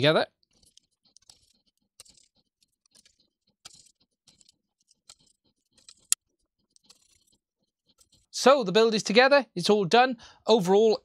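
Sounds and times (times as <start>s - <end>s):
screwdriver clicks and scrapes: 0.5s - 8.3s.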